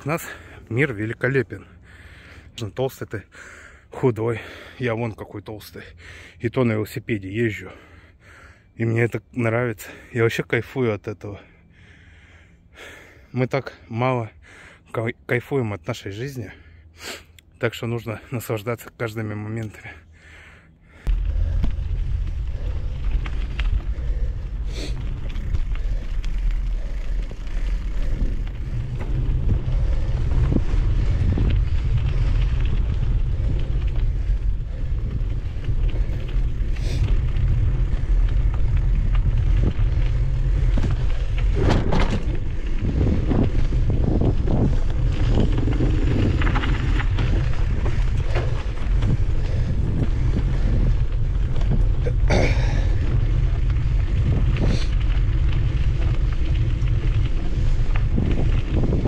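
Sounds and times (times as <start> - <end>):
bike tyres on dirt trail: 0.0 - 2.6, 3.2 - 4.8, 11.4 - 13.3, 19.6 - 59.0
wind on microphone: 21.1 - 59.0.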